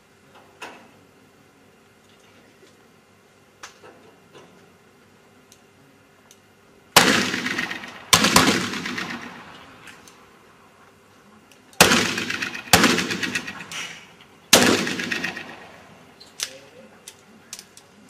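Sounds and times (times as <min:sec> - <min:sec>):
pistol shots echoing: 0:07.0 - 0:09.7, 0:11.8 - 0:16.1.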